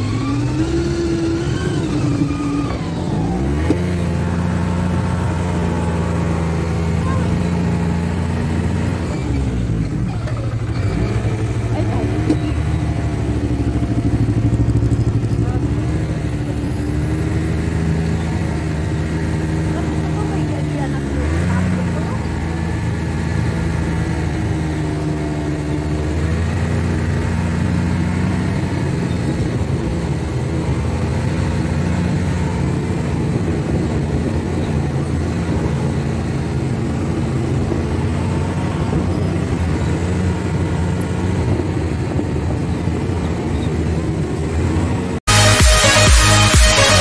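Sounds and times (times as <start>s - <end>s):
snowmobile engine droning: 0.0s - 47.0s
electronic dance music: 45.3s - 47.0s.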